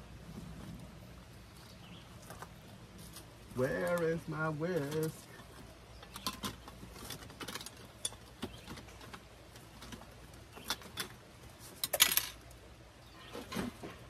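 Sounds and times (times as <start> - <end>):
utensils clattering: 10.6 - 12.4.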